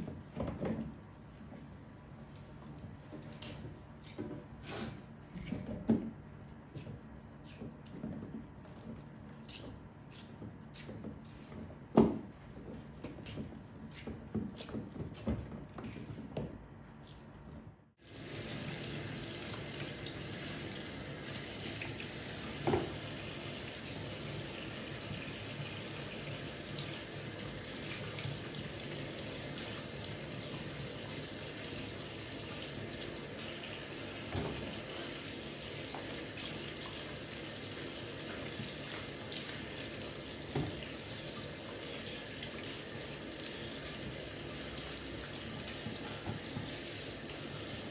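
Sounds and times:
tap running into a sink: 0:21.3 - 0:23.3, 0:32.4 - 0:37.1, 0:38.2 - 0:47.9.

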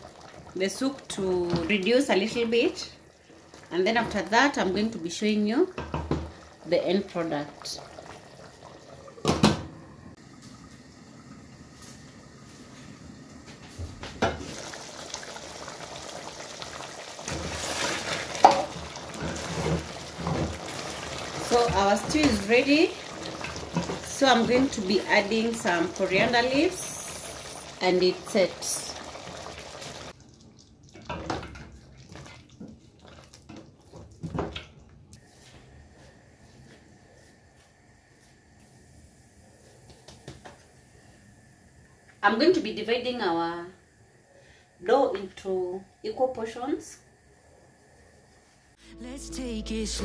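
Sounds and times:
stew bubbling and popping: 0:00.0 - 0:01.9, 0:05.7 - 0:12.2, 0:14.1 - 0:35.2
spatula stirring stew: 0:30.4 - 0:34.4.

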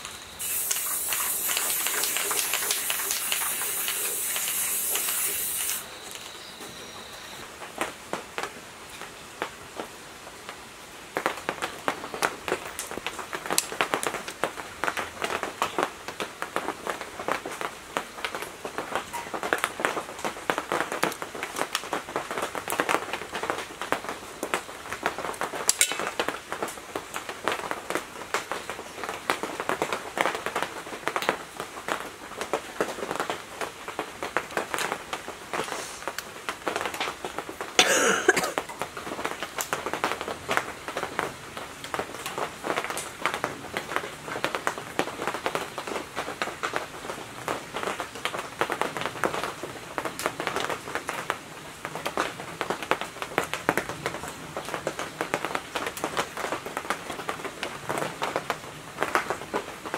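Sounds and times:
spray paint hissing: 0:00.0 - 0:06.6.

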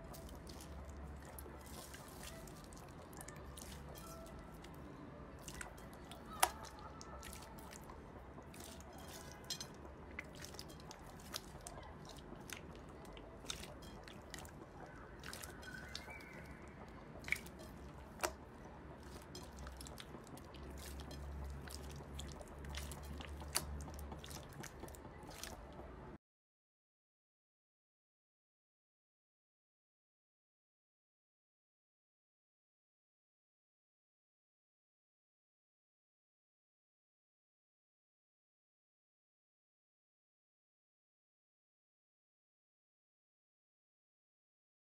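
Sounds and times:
low steady hum: 0:00.0 - 0:26.2
slime squeezed wet pops: 0:05.5 - 0:07.7.

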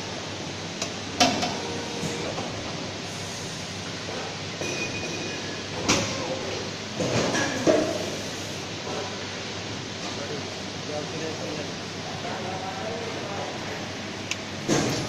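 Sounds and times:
injection moulding machine humming: 0:00.0 - 0:07.1.

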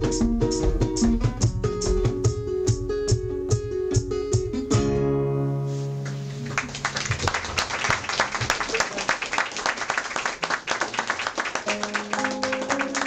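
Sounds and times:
hand drums: 0:00.0 - 0:04.9
classical guitar: 0:00.0 - 0:06.9, 0:11.7 - 0:13.0
applause: 0:06.0 - 0:13.0.

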